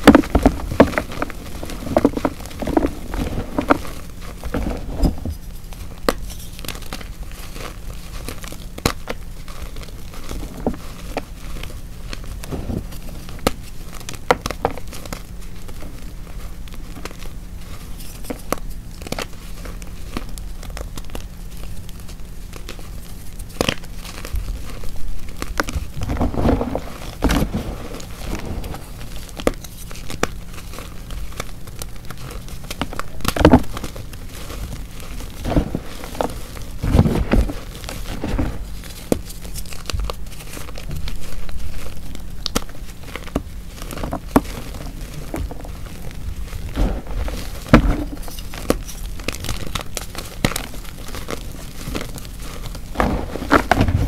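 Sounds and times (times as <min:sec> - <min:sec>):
chalk crushing crackles: 0:00.0 - 0:54.0.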